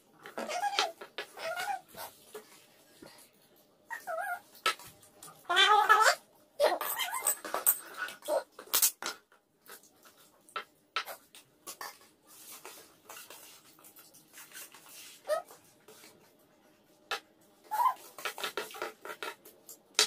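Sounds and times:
cutlery scraping plastic plates: 18.0 - 19.8.

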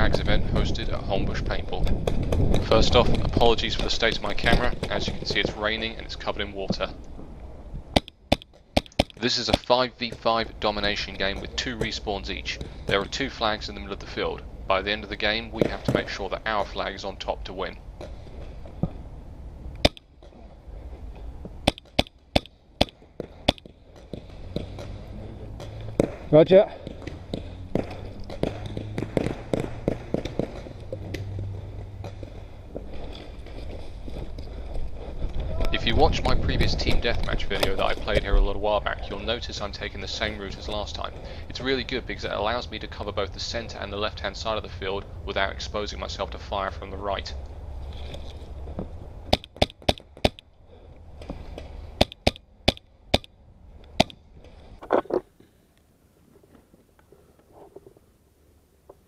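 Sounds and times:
steady low rumble: 0.0 - 8.4, 9.2 - 55.0
paintball markers firing: 7.9 - 10.2, 21.6 - 25.0, 27.0 - 31.3, 49.3 - 50.4, 52.0 - 53.3.

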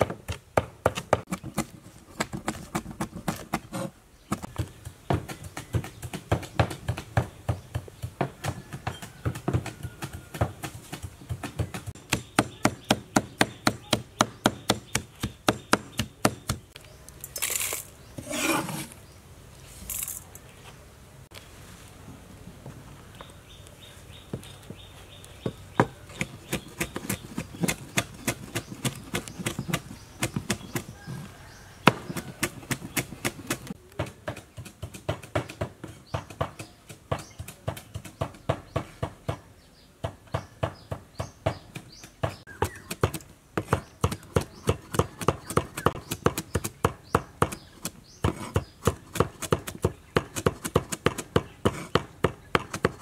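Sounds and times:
cleaver chopping on wooden board: 0.0 - 3.6, 4.3 - 16.6, 31.8 - 39.4, 40.0 - 53.0.

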